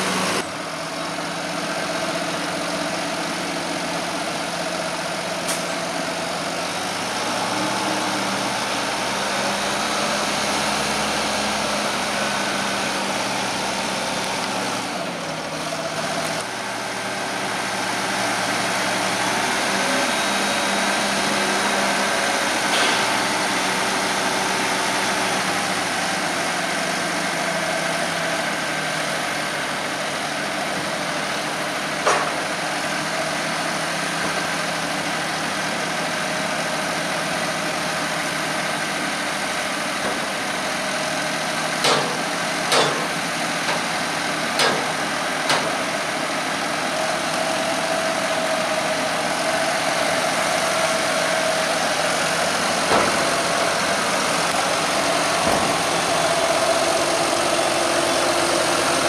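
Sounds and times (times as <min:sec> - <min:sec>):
tractor engine running: 0:00.0 - 0:59.0
sharp knocks: 0:41.8 - 0:43.1.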